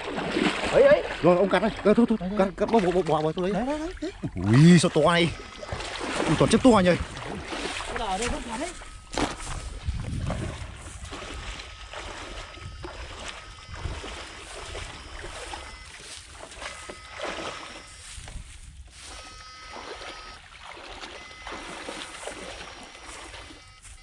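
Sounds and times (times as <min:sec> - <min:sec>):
wading through muddy water: 0:00.0 - 0:24.0
faint high steady tones: 0:04.5 - 0:07.0.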